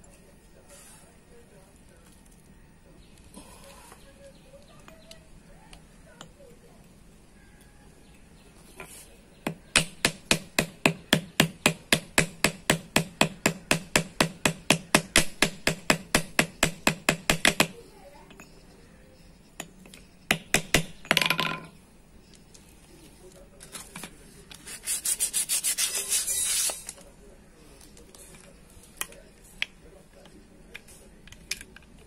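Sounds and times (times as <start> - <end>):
hammer tapping metal rivets: 9.4 - 18.5, 19.6 - 21.7.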